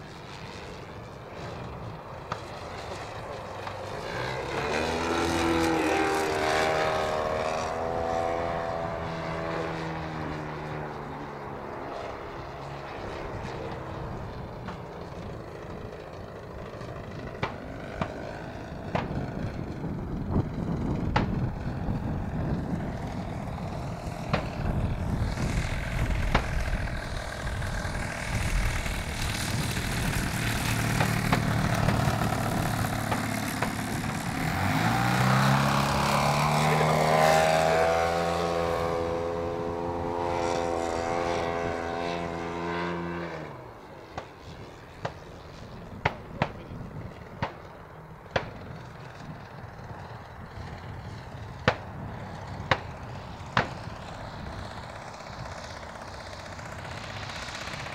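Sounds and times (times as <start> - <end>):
model plane engine and propeller: 0.0 - 57.9
wind rumble: 13.0 - 57.9.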